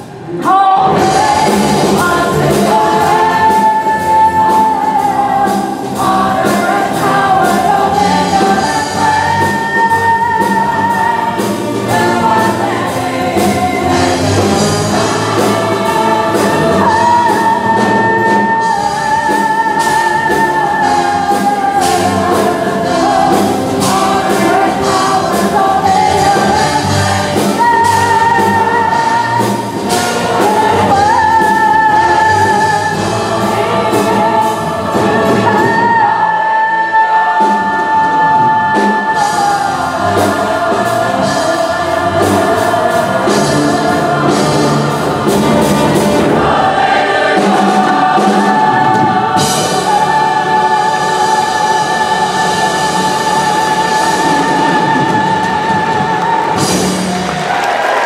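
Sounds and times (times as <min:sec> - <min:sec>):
orchestra and choir: 0:00.0 - 0:58.0
woman singing gospel solo: 0:00.4 - 0:44.8.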